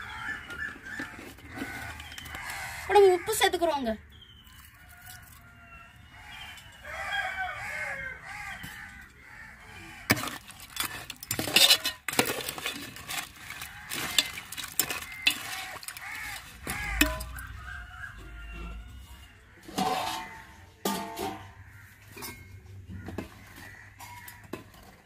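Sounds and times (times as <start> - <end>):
ladle scraping metal pot: 10.0 - 25.0
hens clucking: 13.3 - 24.4.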